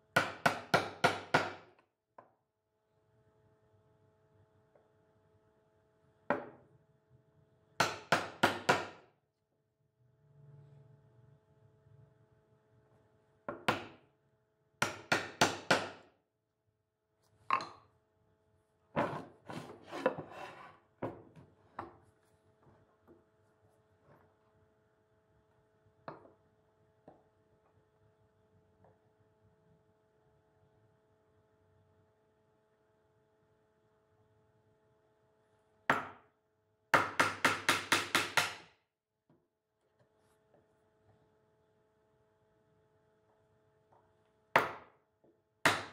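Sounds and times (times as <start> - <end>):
hammer striking a chisel: 0.1 - 1.8, 7.8 - 9.0, 14.8 - 16.1, 35.9 - 36.3, 36.9 - 38.7, 44.5 - 45.0, 45.6 - 45.9.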